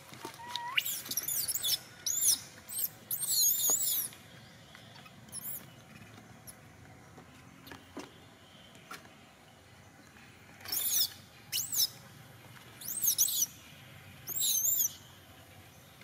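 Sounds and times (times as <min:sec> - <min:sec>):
baby monkey squealing: 0:00.4 - 0:04.1, 0:05.3 - 0:05.6, 0:10.7 - 0:11.9, 0:12.8 - 0:13.5, 0:14.3 - 0:15.0.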